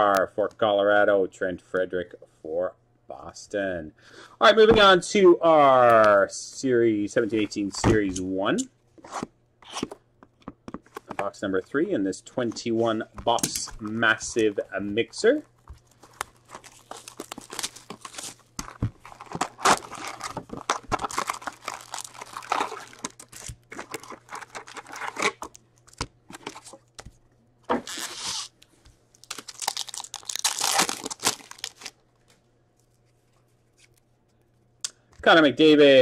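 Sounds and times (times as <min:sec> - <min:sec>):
card pack wrappers tearing: 0:15.3 - 0:26.8, 0:27.8 - 0:28.5, 0:29.2 - 0:32.0.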